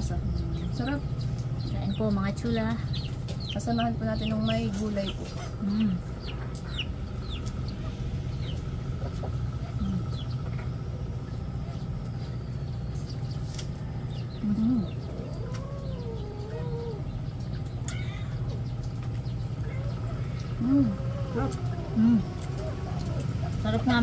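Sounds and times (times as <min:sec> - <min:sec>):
chickens clucking: 0:00.0 - 0:24.0
low hum: 0:00.0 - 0:24.0.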